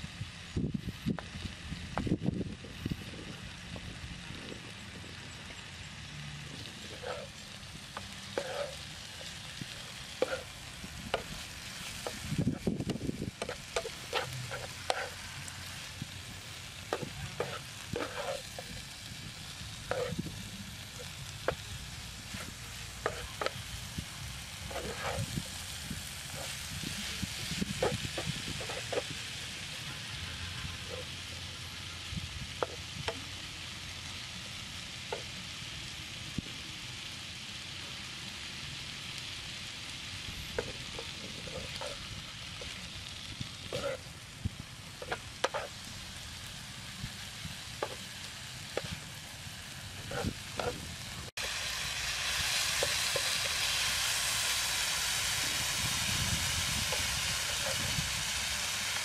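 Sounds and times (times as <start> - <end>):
vegetables sizzling in a frying pan: 0.0 - 59.0
utensil clinking and scraping a pan: 6.8 - 12.7, 13.3 - 15.2, 16.8 - 18.9, 19.8 - 20.3, 22.3 - 23.6, 24.6 - 25.6, 26.2 - 29.2, 40.5 - 42.8, 43.6 - 44.1, 45.0 - 45.8.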